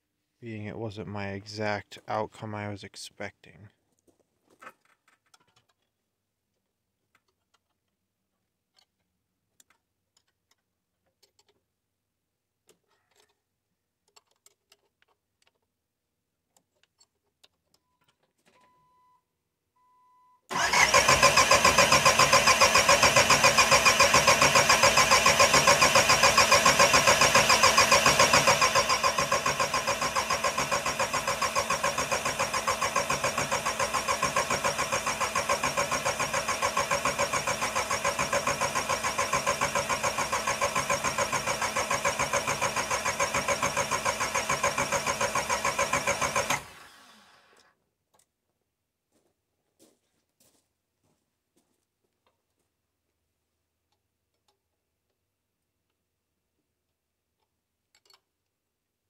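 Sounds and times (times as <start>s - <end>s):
starter motor cranking engine: 20.5s - 47.6s.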